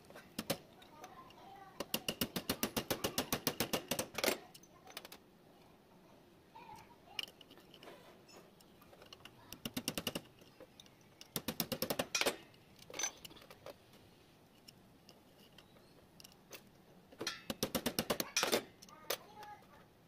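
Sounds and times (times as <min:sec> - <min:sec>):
rapid metallic clicking: 0:08.6 - 0:13.5, 0:14.6 - 0:19.0.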